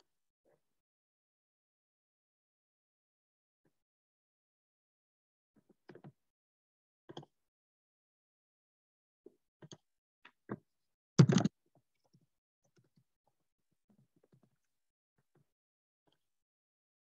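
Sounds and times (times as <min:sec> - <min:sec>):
keyboard and mouse clicks: 0:11.2 - 0:11.5.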